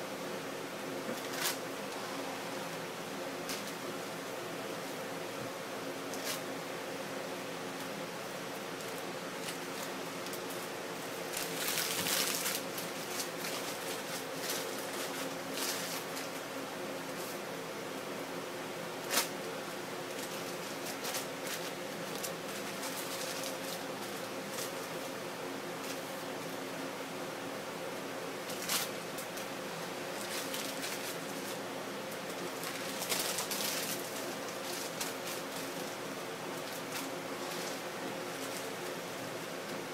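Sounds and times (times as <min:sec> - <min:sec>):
low electrical hum: 0:00.0 - 0:39.9
paper crinkling: 0:01.1 - 0:01.6, 0:08.5 - 0:16.4, 0:20.1 - 0:25.1, 0:28.4 - 0:39.9.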